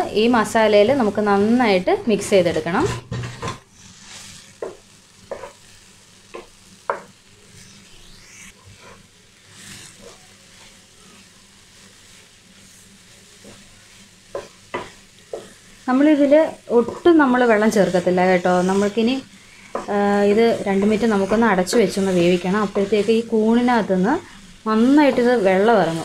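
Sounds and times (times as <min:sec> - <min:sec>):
soft sizzle in frying pan: 0:00.0 - 0:26.0
spatula scraping pan: 0:02.4 - 0:05.7, 0:13.4 - 0:26.0.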